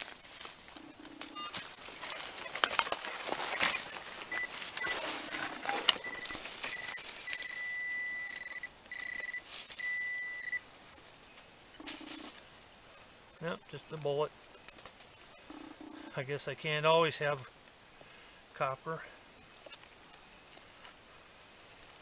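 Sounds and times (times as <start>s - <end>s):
digging through rotten wood: 0.0s - 7.6s
metal detector beeping: 0.8s - 10.6s.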